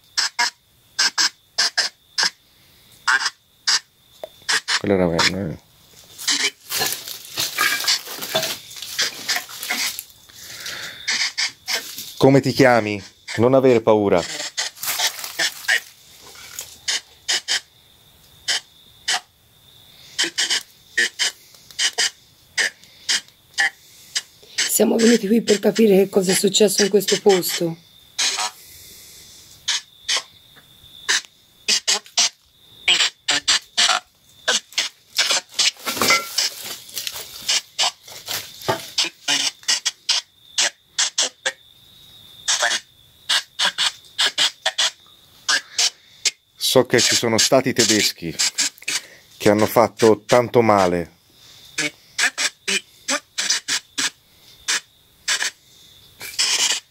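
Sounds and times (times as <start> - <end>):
radio static bursts: 0.0 - 2.4, 3.1 - 5.6, 6.2 - 10.1, 10.7 - 17.7, 18.4 - 19.3, 20.1 - 28.7, 31.1 - 38.0, 38.6 - 41.4, 46.9 - 49.0, 51.8 - 55.6, 56.2 - 56.9
voice-like fragments: 6.2 - 10.0, 11.0 - 17.6, 24.6 - 28.6.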